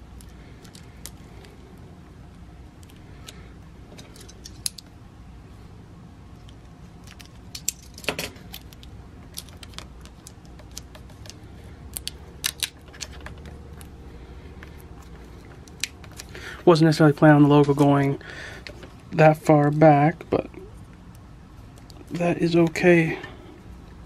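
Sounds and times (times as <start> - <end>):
plastic clicks and crinkles: 6.4 - 13.9.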